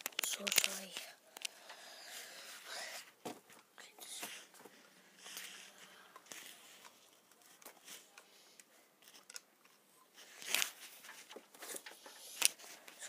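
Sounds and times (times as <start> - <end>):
camera handling rustling and clicking: 0.0 - 1.6, 9.0 - 13.0.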